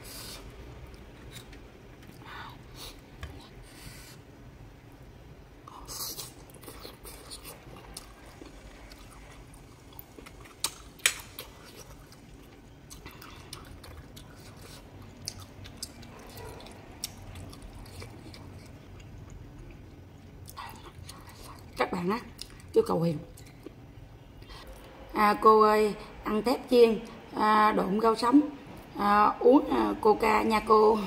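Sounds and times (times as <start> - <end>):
chewing and wet mouth noises: 5.6 - 23.8.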